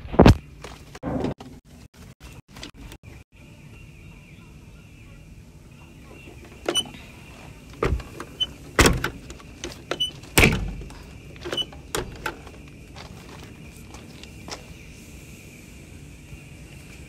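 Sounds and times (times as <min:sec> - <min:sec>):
cab door knocks and clunks: 0:07.8 - 0:12.5.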